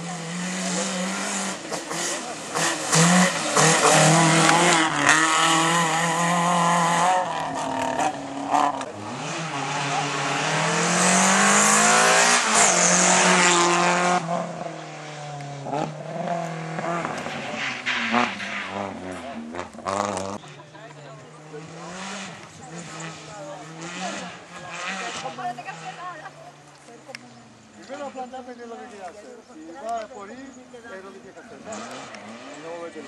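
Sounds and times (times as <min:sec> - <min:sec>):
car accelerating past: 0:00.0 - 0:20.5
rally car engine revving: 0:00.0 - 0:26.7, 0:31.4 - 0:33.0.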